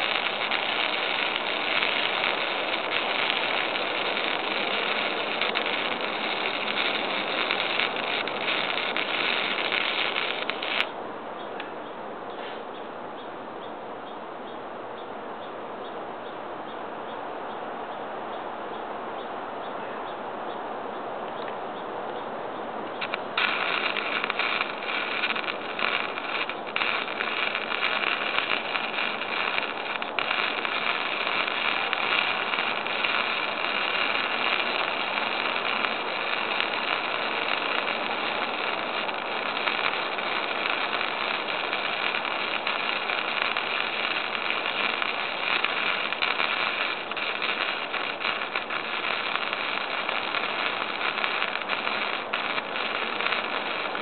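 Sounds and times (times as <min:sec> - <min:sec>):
welding arc crackling: 0:00.0 - 0:10.9, 0:23.0 - 0:54.0.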